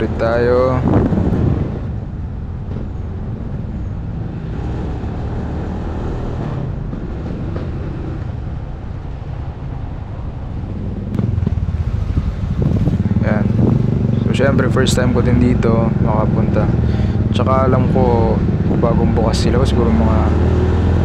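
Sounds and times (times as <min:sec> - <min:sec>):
road and wind noise: 0:00.0 - 0:21.0
motorcycle engine running: 0:10.7 - 0:19.0.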